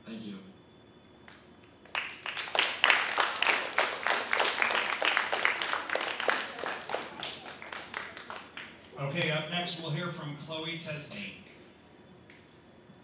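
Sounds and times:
audience applauding: 0:01.8 - 0:08.9.

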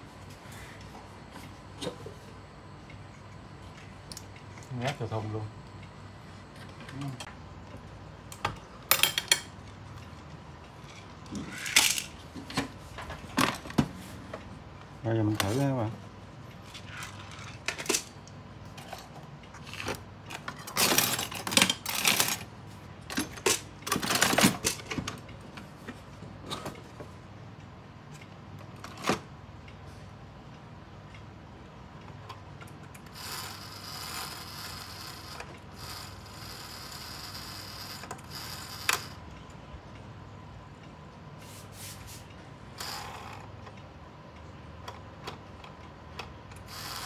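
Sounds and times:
mechanical whir: 0:10.8 - 0:12.2, 0:32.6 - 0:39.4, 0:42.7 - 0:43.8, 0:46.5 - 0:47.0.

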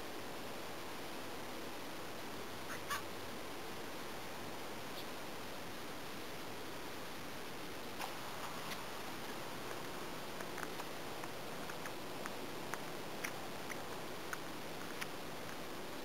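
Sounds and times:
steady hiss: 0:00.0 - 0:16.0
cat chewing and crunching: 0:08.0 - 0:15.7.

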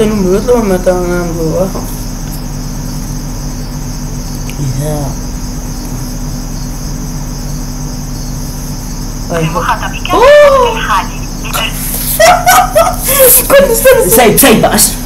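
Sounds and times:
low hum: 0:00.0 - 0:12.9
high-pitched background noise: 0:00.0 - 0:15.0
person's voice: 0:09.3 - 0:11.9.

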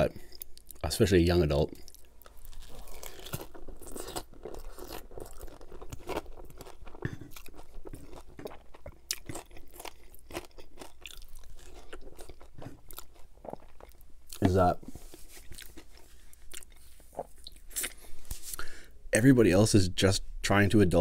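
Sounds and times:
chewing with crunching mouth sounds: 0:01.6 - 0:18.2.

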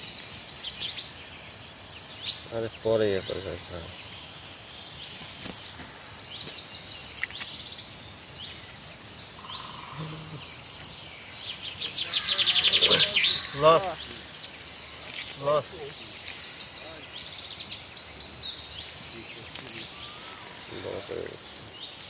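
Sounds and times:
birds chirping and calling: 0:00.0 - 0:22.0
fast loud bird trill: 0:11.7 - 0:16.9, 0:19.1 - 0:22.0.

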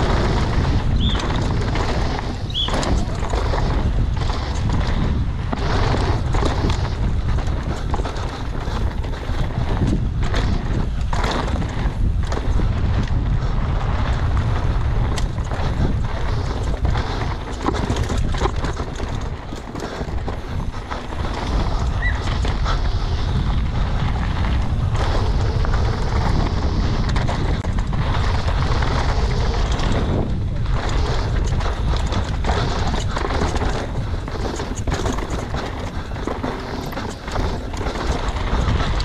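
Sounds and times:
bike knocking and rattling: 0:00.0 - 0:39.0
tyres crunching on gravel: 0:00.0 - 0:39.0
wind rush on microphone: 0:00.0 - 0:39.0.

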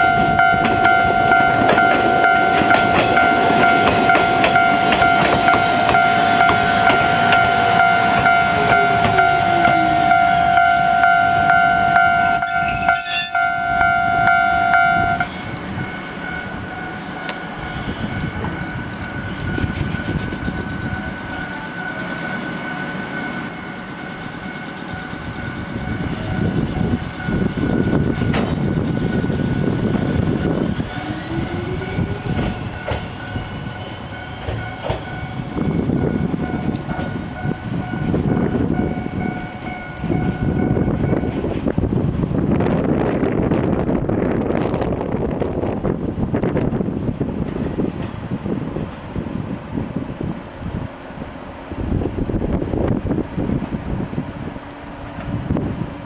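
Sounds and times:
level crossing warning bell: 0:00.0 - 0:15.3, 0:20.6 - 0:26.4, 0:30.9 - 0:41.4
electric train rumbling on rails: 0:00.0 - 0:56.0.

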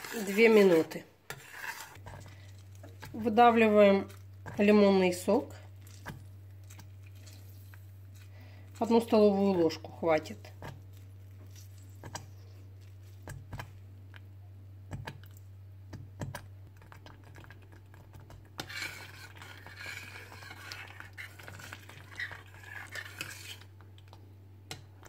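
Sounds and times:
metal spoon scraping pan: 0:00.0 - 0:04.7, 0:18.6 - 0:23.7
sauce simmering with soft pops: 0:05.4 - 0:08.9, 0:10.5 - 0:25.0.

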